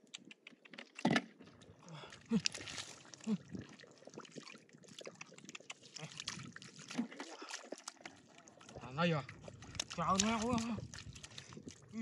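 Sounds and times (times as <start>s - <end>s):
squelching and sloshing muddy water: 0.0s - 12.0s
fish slapping in wet mud: 2.3s - 3.2s, 9.5s - 11.9s.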